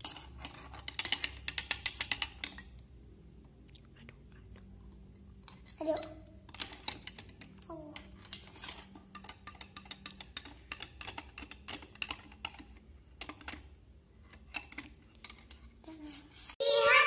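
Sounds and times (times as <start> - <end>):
spoon clinking in glass jar: 4.8 - 7.2.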